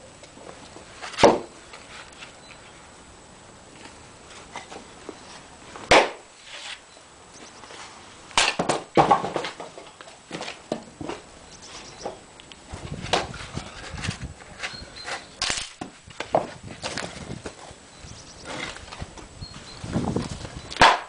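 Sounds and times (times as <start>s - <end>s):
axe striking wood: 1.2s - 1.5s, 5.9s - 6.2s, 8.4s - 9.7s, 20.8s - 21.0s
wooden knocks and clatter: 8.6s - 11.2s, 12.8s - 17.7s.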